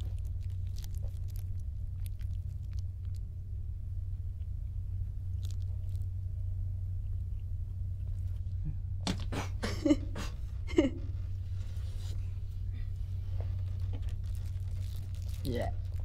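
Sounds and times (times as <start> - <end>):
faint chewing: 0.0 - 3.4, 4.3 - 6.2, 7.0 - 9.6, 11.1 - 16.0
steady low hum: 0.0 - 16.0
woman laughing: 9.4 - 11.2.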